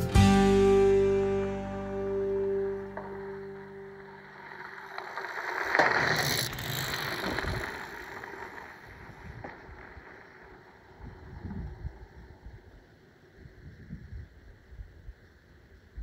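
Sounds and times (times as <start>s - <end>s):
bike tyres crunching on gravel: 2.6s - 12.2s.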